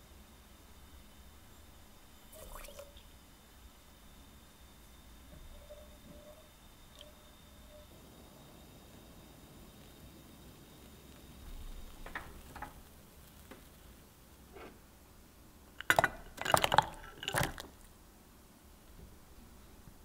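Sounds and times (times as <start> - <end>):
kitchenware clinking: 15.8 - 17.8.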